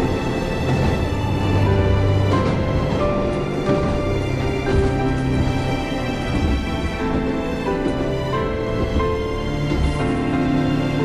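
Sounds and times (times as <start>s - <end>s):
background music with held notes: 0.0s - 11.0s.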